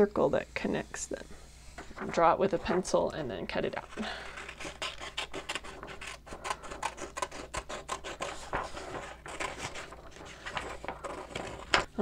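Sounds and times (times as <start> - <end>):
scissors snipping paper: 3.8 - 11.9.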